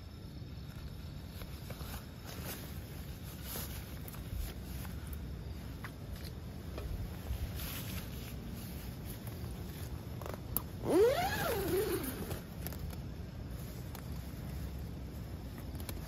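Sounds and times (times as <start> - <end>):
steady low rumble: 12.3 - 16.0.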